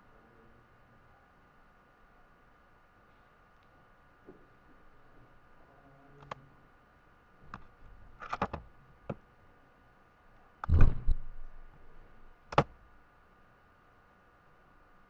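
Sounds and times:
faint steady hum: 0.0s - 15.0s
sharp clicks and knocks: 7.5s - 9.2s, 10.6s - 11.9s, 12.5s - 12.8s
deep thump: 10.6s - 11.8s.

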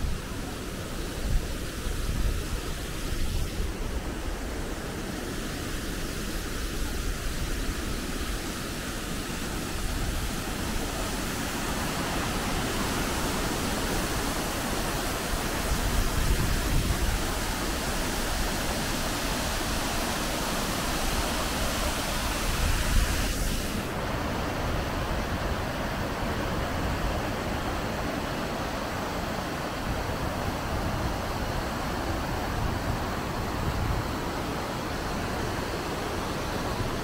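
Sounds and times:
waterfall rushing: 0.0s - 37.0s.

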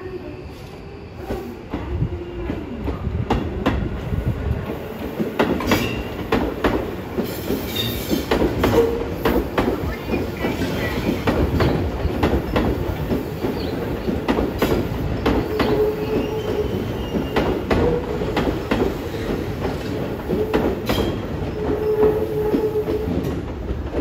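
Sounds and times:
low train rumble: 0.0s - 24.0s
train wheels clacking over rail joints: 4.8s - 24.0s.

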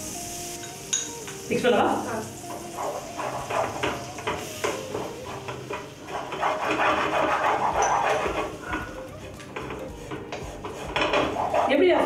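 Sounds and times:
light frying sizzle: 0.0s - 12.0s
wooden spatula scraping a pan: 2.5s - 12.0s.

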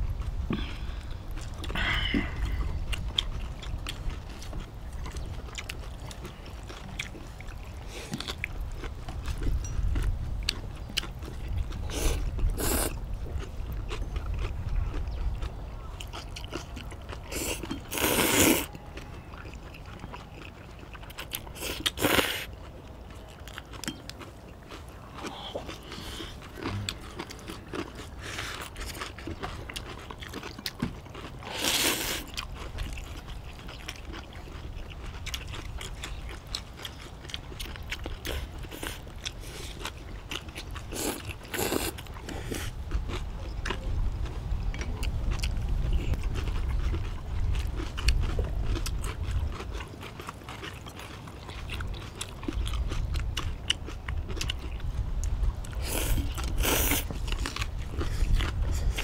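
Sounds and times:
chewing and crunching: 0.0s - 59.0s
slurping noodles: 17.3s - 18.7s, 31.4s - 32.3s, 40.9s - 42.7s.

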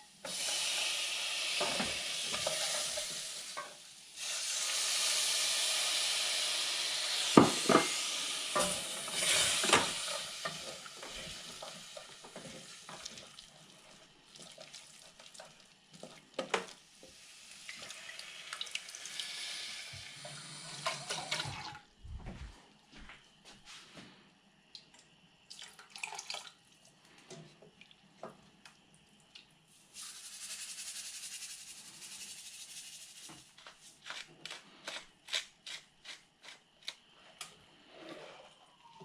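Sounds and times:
tomatoes sizzling in a hot pot: 0.0s - 21.6s, 29.6s - 36.8s.

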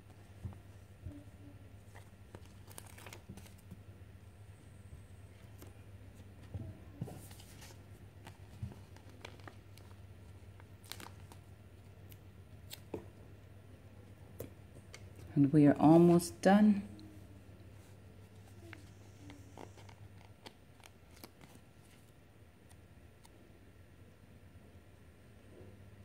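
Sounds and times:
steady low hum: 0.0s - 26.0s
paper sticker sheet crinkling: 1.8s - 3.8s, 7.2s - 13.0s, 18.3s - 23.3s.

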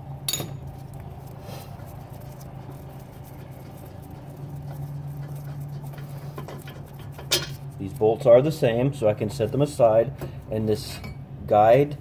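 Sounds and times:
steady low hum: 0.0s - 12.0s
faint scratching and clicks: 0.7s - 9.8s.

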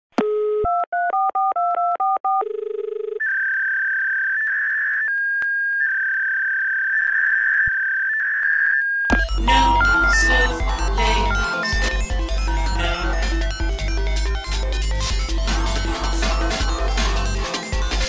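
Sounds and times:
touch-tone keypad beeps: 9.2s - 13.4s.

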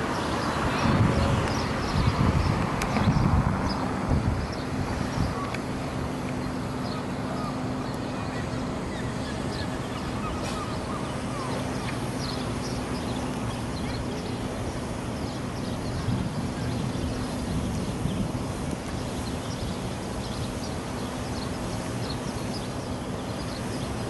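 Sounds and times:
birds calling: 0.0s - 18.3s
low mechanical hum: 0.0s - 24.0s.

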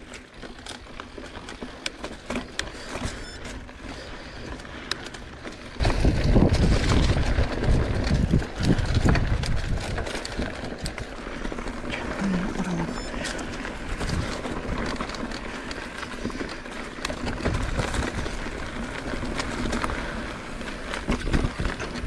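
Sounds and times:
bike rattles and clicks: 0.0s - 22.0s
tyres rolling over dirt trail: 0.0s - 22.0s
wind rumble on microphone: 5.8s - 10.9s.

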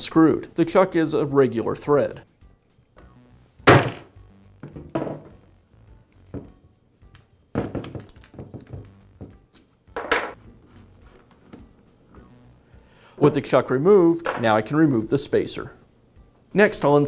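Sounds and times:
metal tool clunks: 3.7s - 5.4s
mallet knocking on metal wrench: 7.6s - 9.4s.

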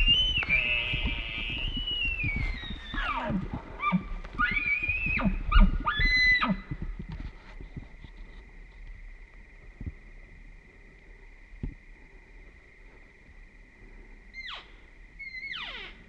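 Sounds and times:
elk bugling whistle: 0.0s - 6.6s.

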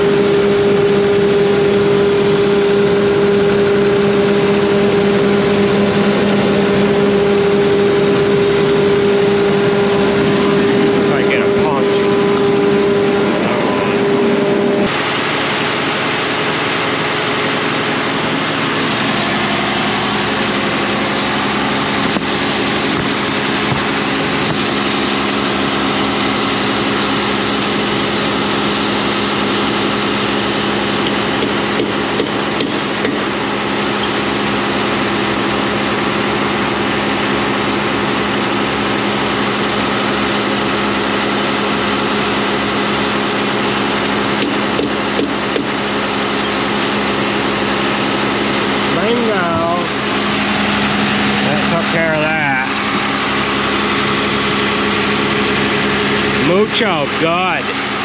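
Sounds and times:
tractor diesel engine idling: 0.0s - 58.0s.

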